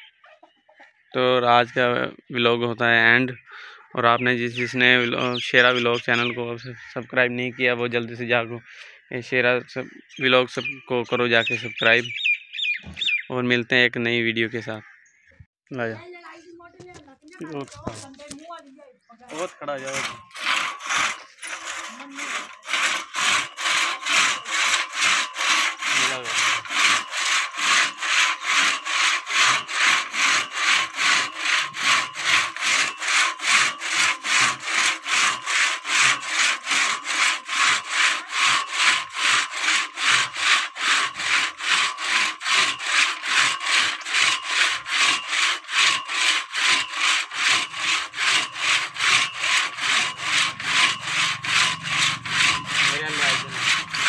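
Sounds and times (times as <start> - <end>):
crosscut saw rasping through wood: 17.5 - 18.4, 19.3 - 54.0.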